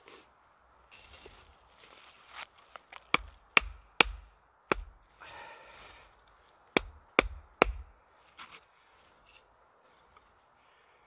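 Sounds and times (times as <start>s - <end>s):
sharp blows on wood: 3.1s - 5.0s, 6.8s - 8.0s.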